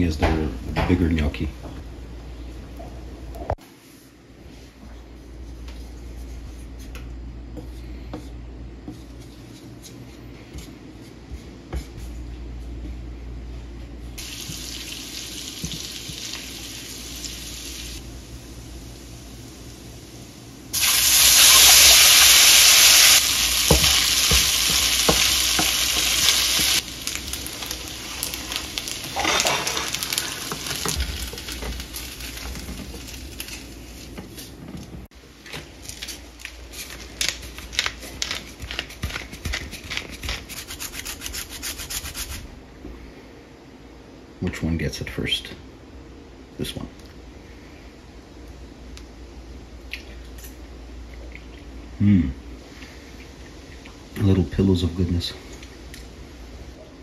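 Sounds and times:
food sizzling in a frying pan: 0:14.2 - 0:34.2
wooden spoon tapping and scraping: 0:23.7 - 0:26.8.

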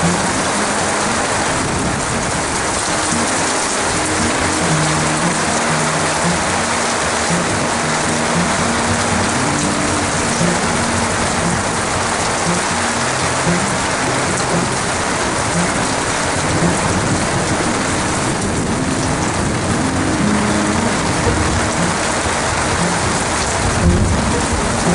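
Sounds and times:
heavy rain pouring: 0:00.0 - 0:24.9
runoff streaming off roof: 0:00.0 - 0:24.9.

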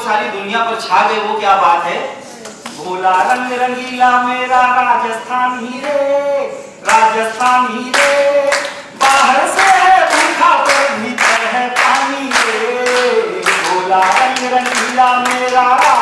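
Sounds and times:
hands clapping in time: 0:07.9 - 0:16.0.

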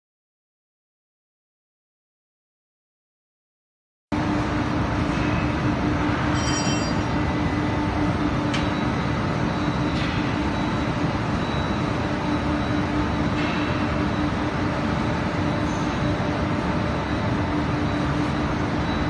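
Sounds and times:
dryer machine hum: 0:04.2 - 0:19.0.

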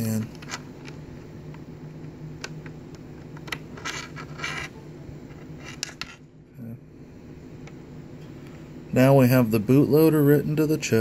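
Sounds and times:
low steady hum: 0:00.0 - 0:11.0
scratchy scraping on workbench: 0:03.8 - 0:04.7.

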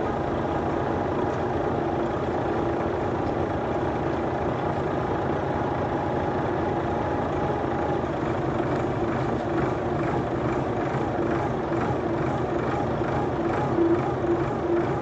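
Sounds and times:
heavy vehicle engine droning: 0:00.0 - 0:15.0.

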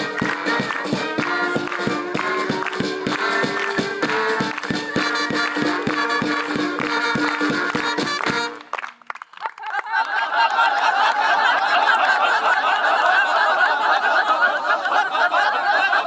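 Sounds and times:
crowd cheering and whooping: 0:00.0 - 0:06.9
band music: 0:00.0 - 0:08.8.

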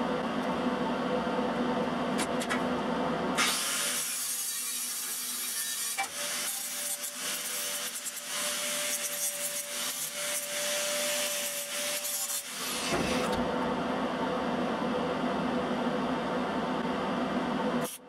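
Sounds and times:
steady electrical hum: 0:06.4 - 0:18.0.

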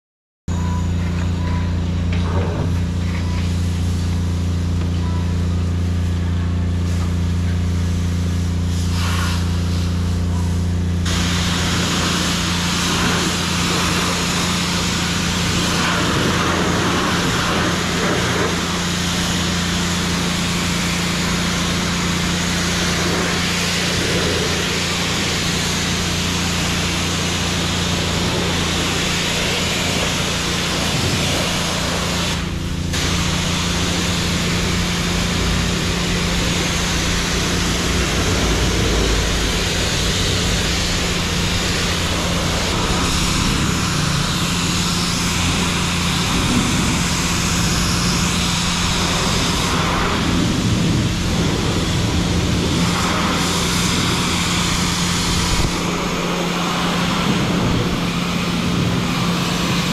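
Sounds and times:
steady low hum: 0:00.5 - 0:59.9
high-pressure water spray: 0:02.8 - 0:59.9.

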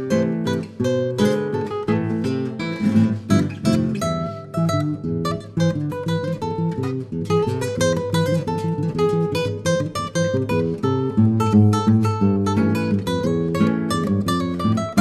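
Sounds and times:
acoustic guitar plucking and strumming: 0:00.0 - 0:15.0.

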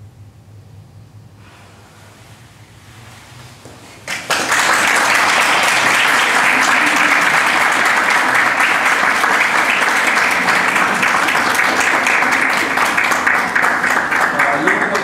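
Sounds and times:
audience applauding: 0:04.0 - 0:15.0.

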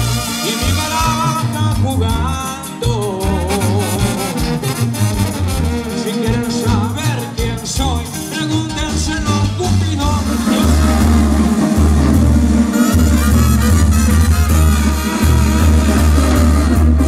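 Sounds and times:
latin music: 0:00.0 - 0:17.0
pulsing bass line: 0:00.0 - 0:17.0
person singing: 0:00.4 - 0:04.7, 0:06.0 - 0:11.8.

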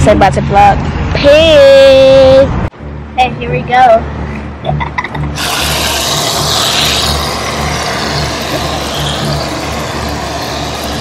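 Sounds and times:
aerosol can spraying hiss: 0:05.4 - 0:11.0.

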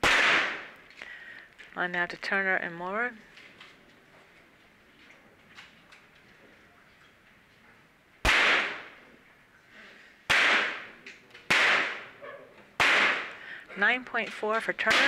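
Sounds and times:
pistol shots with echo: 0:00.0 - 0:00.8, 0:08.2 - 0:09.0, 0:10.3 - 0:12.2, 0:12.8 - 0:13.4.

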